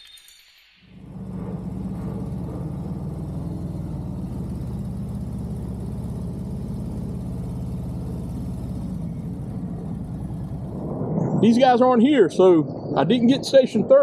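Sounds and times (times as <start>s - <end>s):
motorcycle engine idling: 1.0s - 11.0s.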